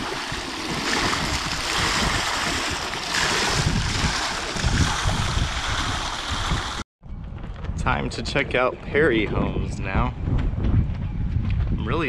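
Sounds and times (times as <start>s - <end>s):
water spilling and splashing: 0.0s - 6.8s
wind rumbling on microphone: 0.0s - 12.0s.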